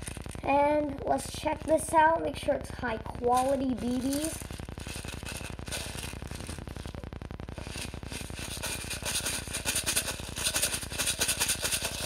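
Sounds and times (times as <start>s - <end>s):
pellets rattling in plastic bottle: 3.4s - 6.9s, 7.6s - 12.0s.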